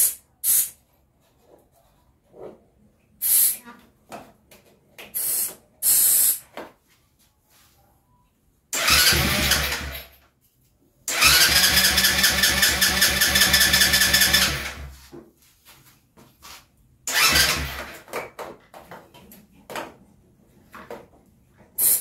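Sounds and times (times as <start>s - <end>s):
engine cranking on starter: 8.8s - 10.2s, 11.1s - 14.9s, 17.1s - 18.0s.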